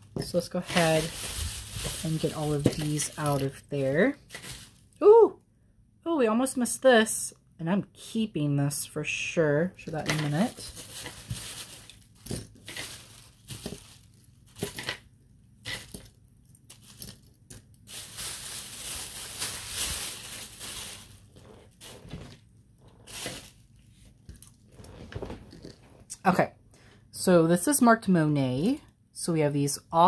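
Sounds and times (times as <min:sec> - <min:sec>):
packaging rustling and crinkling: 0:00.1 - 0:05.0, 0:10.0 - 0:15.0, 0:15.7 - 0:25.8.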